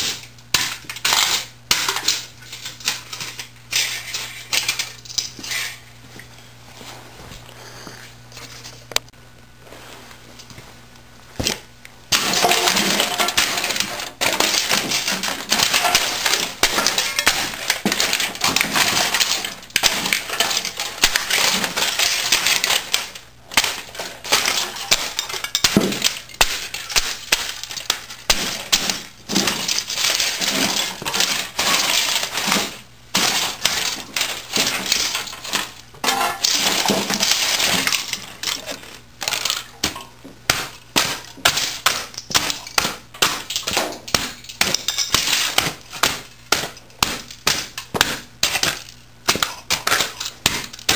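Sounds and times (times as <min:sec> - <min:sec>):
plastic and metal crunching underfoot: 0:10.3 - 0:50.9.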